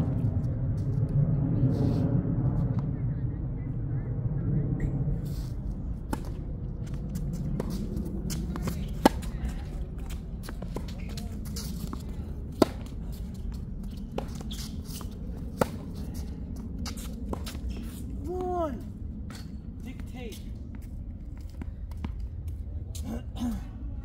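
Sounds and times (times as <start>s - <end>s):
low background rumble: 0.0s - 24.0s
tennis ball strikes: 6.1s - 7.0s, 7.6s - 13.3s.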